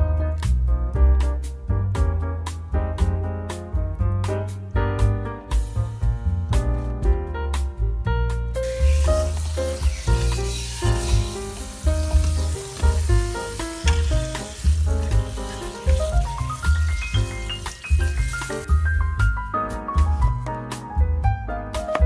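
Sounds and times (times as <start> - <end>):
piano music with bass line: 0.0 - 22.0
tap water running into sink: 8.6 - 18.7.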